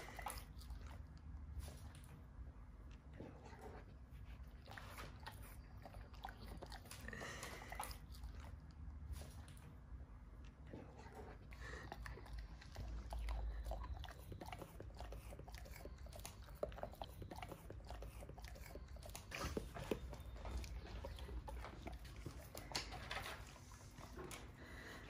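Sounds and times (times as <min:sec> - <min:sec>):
dog chewing dry hay: 0:10.9 - 0:24.6.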